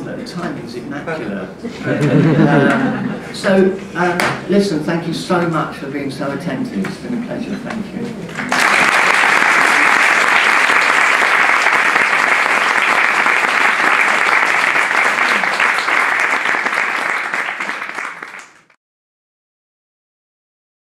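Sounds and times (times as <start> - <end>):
audience applauding: 8.3 - 18.8.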